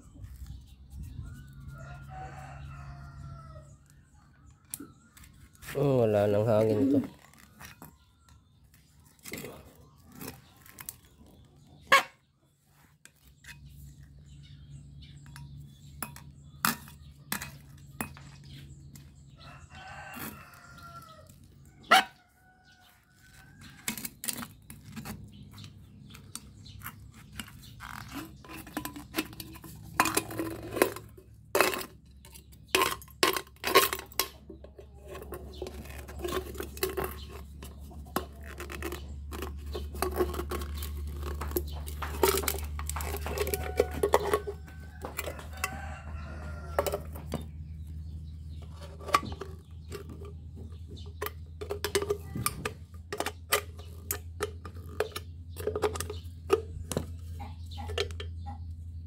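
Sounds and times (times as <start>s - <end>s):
rooster crowing: 1.5s - 3.7s, 19.4s - 21.3s, 43.2s - 47.2s
metal rod clinking on can: 28.4s - 34.4s.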